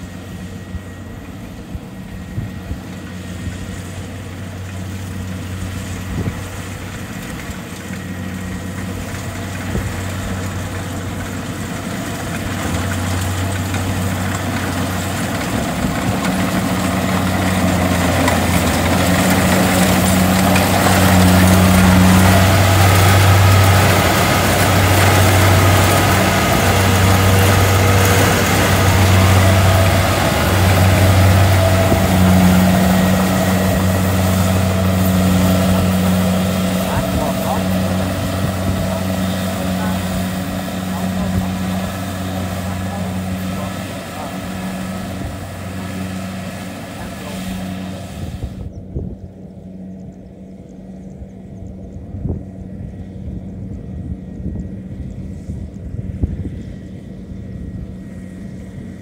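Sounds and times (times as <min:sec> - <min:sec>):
diesel engine hum: 0:00.0 - 0:59.0
harvesting machinery rattle: 0:00.1 - 0:55.8.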